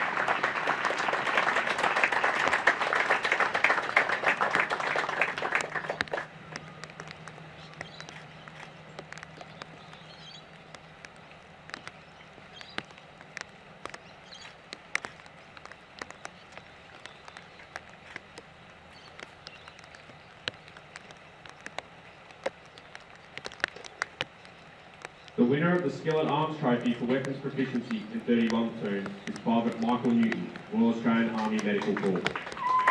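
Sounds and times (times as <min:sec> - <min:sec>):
sharp ticks and taps: 0:06.0 - 0:32.2.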